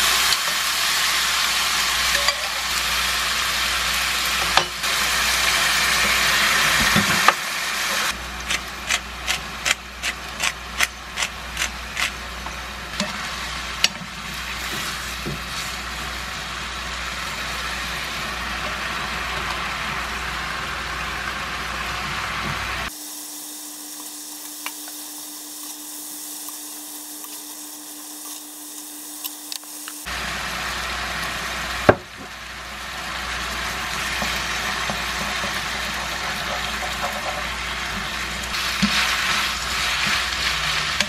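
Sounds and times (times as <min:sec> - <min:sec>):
food sizzling in a frying pan: 0:00.0 - 0:41.0
spatula stirring food: 0:34.1 - 0:41.0.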